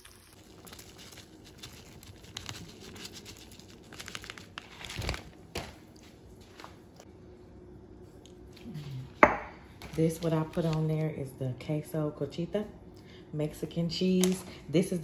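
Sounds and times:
crinkling and rustling: 0.4 - 7.0.

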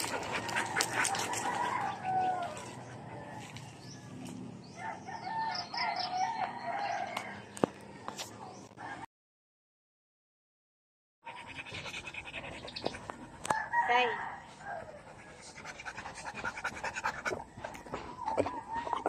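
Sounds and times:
rooster crowing: 0.6 - 3.6, 13.5 - 15.0.

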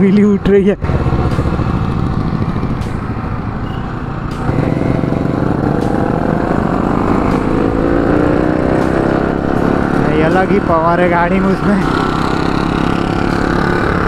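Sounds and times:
road and wind rush: 0.0 - 14.0
motorcycle engine accelerating: 0.8 - 14.0.

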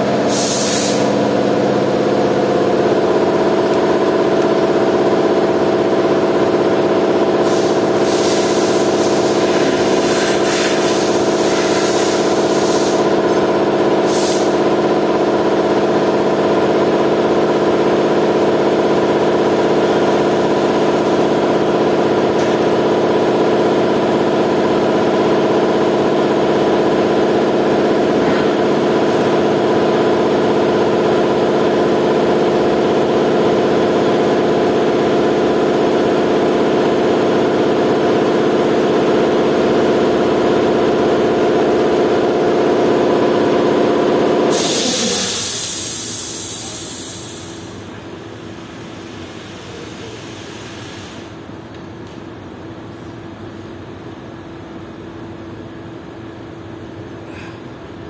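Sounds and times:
machine motor humming: 0.0 - 48.1
hiss: 0.2 - 1.2, 7.4 - 13.2, 14.0 - 14.6, 44.5 - 48.0, 48.6 - 51.3.

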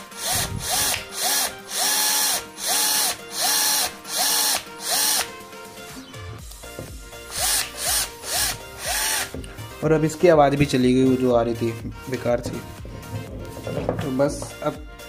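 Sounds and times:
cordless drill motor whine: 0.0 - 5.3, 7.3 - 9.4.

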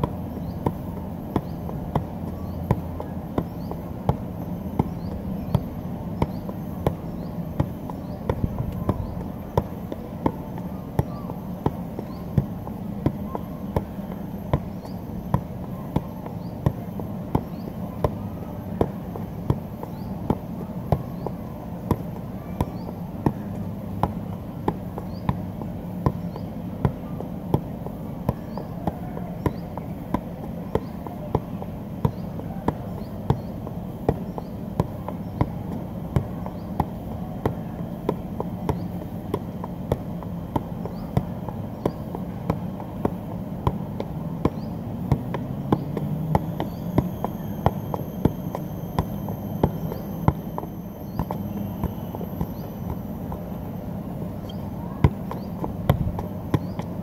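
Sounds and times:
ball thudding on foot: 0.0 - 27.7, 28.3 - 33.5, 34.1 - 53.5, 54.4 - 57.0.

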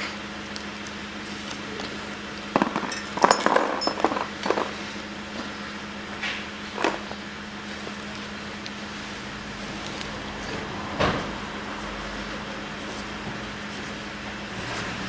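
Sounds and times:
steady low hum: 0.0 - 15.0
steel parts clinking: 2.6 - 4.7.

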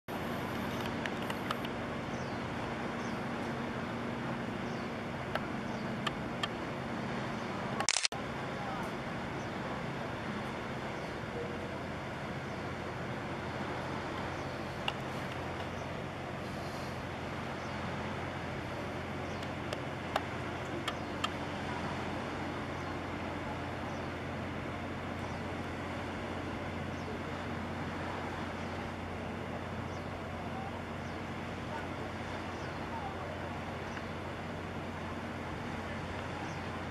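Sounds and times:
low engine hum: 0.1 - 36.9
outdoor noise: 0.1 - 36.9
faint clicks: 0.5 - 1.8, 5.3 - 6.6, 14.8 - 15.8, 19.3 - 21.4
short clicks: 7.8 - 8.2.

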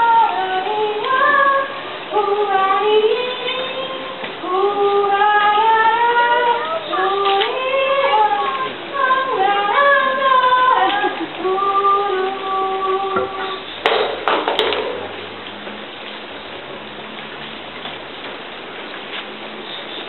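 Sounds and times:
woman singing unaccompanied: 0.0 - 13.8.

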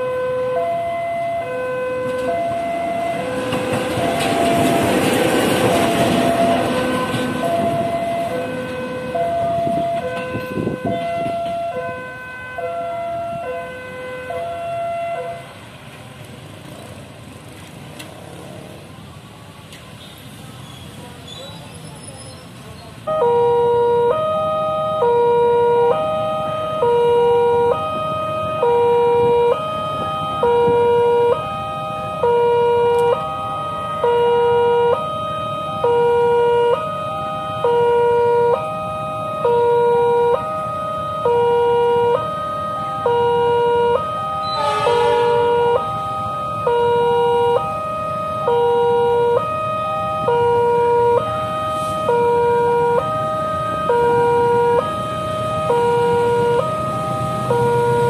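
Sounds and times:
level-crossing alarm two tones: 0.0 - 15.4, 23.1 - 58.0
short higher alarm burst: 43.0 - 47.8.

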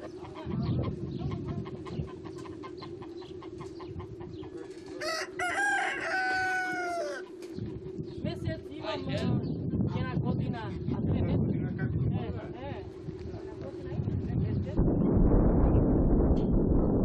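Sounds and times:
hen clucking: 0.0 - 8.2
rooster crowing: 4.8 - 7.4.

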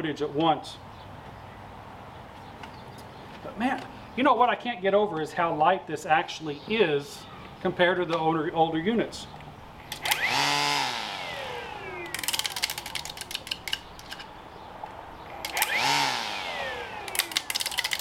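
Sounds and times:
rapid clicks of trimmer head: 9.4 - 11.1, 11.9 - 14.3, 15.3 - 18.0
string trimmer motor whining: 9.5 - 14.3, 15.0 - 18.0.

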